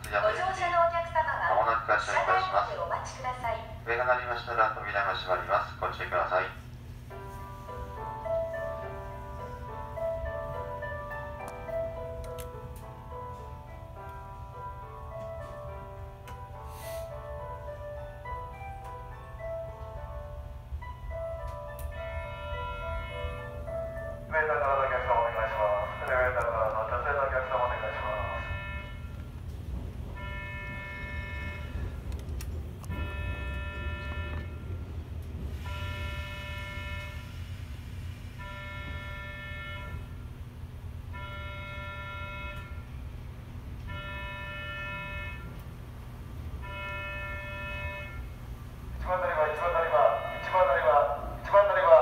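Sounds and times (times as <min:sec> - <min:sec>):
electric train humming: 0:00.0 - 0:52.0
electronic departure bell: 0:17.4 - 0:32.1, 0:32.9 - 0:37.5, 0:38.4 - 0:40.3, 0:41.1 - 0:43.1, 0:43.8 - 0:45.6, 0:46.6 - 0:48.4, 0:49.6 - 0:51.3.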